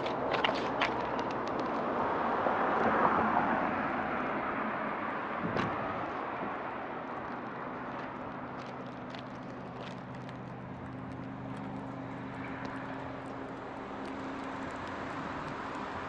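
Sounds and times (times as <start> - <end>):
car passing by: 0.0 - 7.8.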